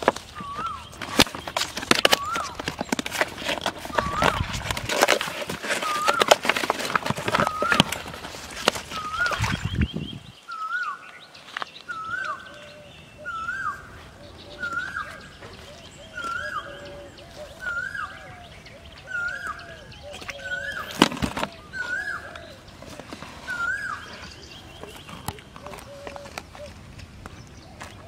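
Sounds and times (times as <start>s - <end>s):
fish thrashing in a plastic tub: 0.0s - 10.0s, 19.2s - 26.6s
bird whistled call: 0.4s - 1.0s, 2.1s - 2.6s, 7.4s - 8.0s, 8.9s - 22.6s, 23.4s - 25.3s.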